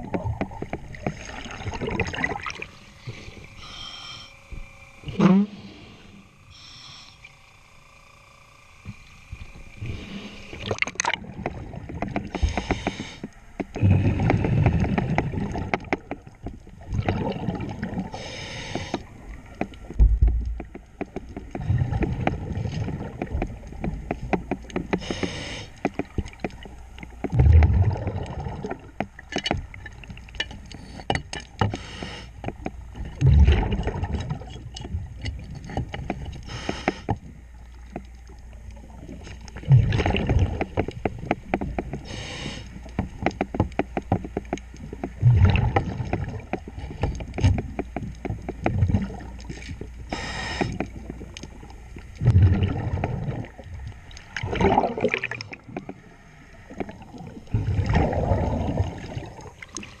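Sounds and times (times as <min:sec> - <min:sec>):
gurgling exhaled bubbles: 0:00.0 - 0:03.3, 0:09.8 - 0:12.5, 0:13.8 - 0:19.4, 0:21.5 - 0:23.6, 0:27.3 - 0:29.0, 0:33.1 - 0:34.7, 0:38.8 - 0:40.8, 0:45.2 - 0:47.1, 0:48.6 - 1:00.0
steady low hum: 0:00.0 - 1:00.0
regulator hiss on inhale: 0:02.6 - 0:07.8, 0:09.0 - 0:10.7, 0:12.2 - 0:13.4, 0:18.1 - 0:19.3, 0:24.9 - 0:26.0, 0:30.7 - 0:32.5, 0:36.4 - 0:37.2, 0:42.0 - 0:43.0, 0:50.1 - 0:51.0.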